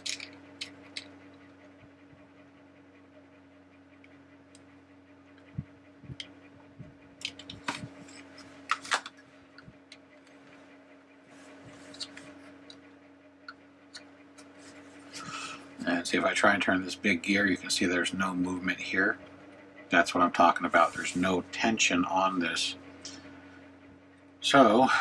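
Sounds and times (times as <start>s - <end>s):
plastic gears clicking: 0.0s - 1.1s
faint steady hum: 0.0s - 25.0s.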